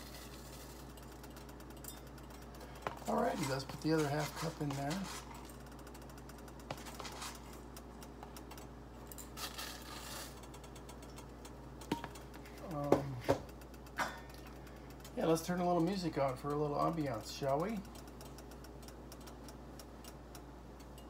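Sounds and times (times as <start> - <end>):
metal cup scraping oats: 0.0 - 1.0, 3.1 - 5.5, 9.4 - 10.4
oats pouring: 0.0 - 1.0, 9.4 - 10.4
steady low hum: 0.0 - 21.0.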